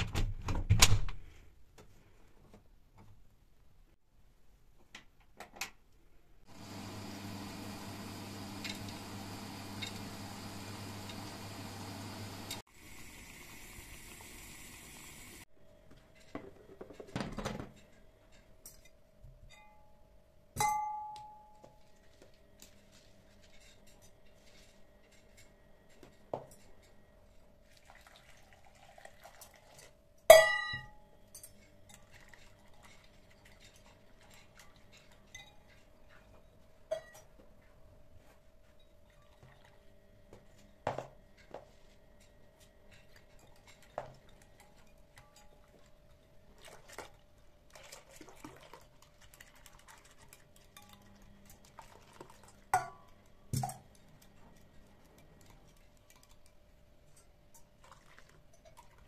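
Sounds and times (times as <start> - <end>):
metal pot clanking on glass jug: 30.3 - 35.8, 52.7 - 53.9.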